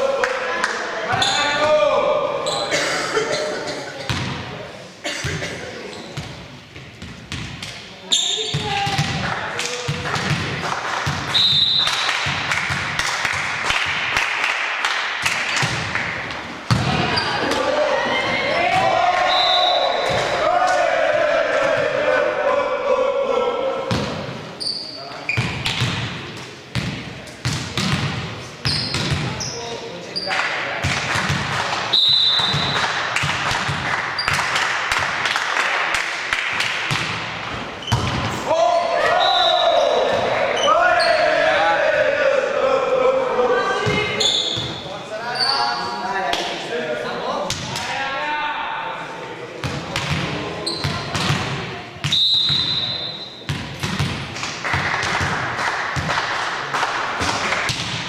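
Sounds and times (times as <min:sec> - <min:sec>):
crowd and hall noise: 0:00.0 - 0:58.0
sneaker squeak: 0:01.1 - 0:01.6, 0:02.4 - 0:02.7, 0:08.0 - 0:08.8, 0:17.1 - 0:17.4, 0:24.6 - 0:25.8, 0:28.6 - 0:30.4, 0:31.9 - 0:32.8, 0:37.8 - 0:38.1, 0:43.7 - 0:46.0, 0:50.6 - 0:51.1, 0:52.0 - 0:53.5
basketball bouncing: 0:09.9 - 0:11.3, 0:25.4 - 0:29.4, 0:30.8 - 0:31.6, 0:36.8 - 0:38.3, 0:49.6 - 0:51.6, 0:53.5 - 0:56.2, 0:57.2 - 0:58.0
basketball bouncing on hard court: 0:09.9 - 0:11.3, 0:26.7 - 0:29.4, 0:53.5 - 0:55.4.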